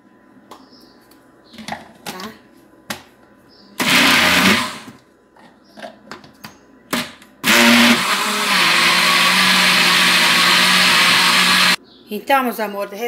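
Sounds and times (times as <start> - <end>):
blender motor running: 3.8 - 4.9, 7.4 - 11.8.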